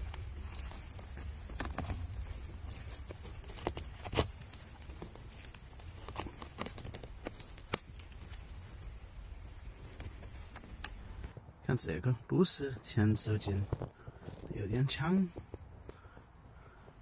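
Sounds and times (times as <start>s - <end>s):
rustling and small snaps: 0.0s - 11.5s, 13.4s - 14.6s.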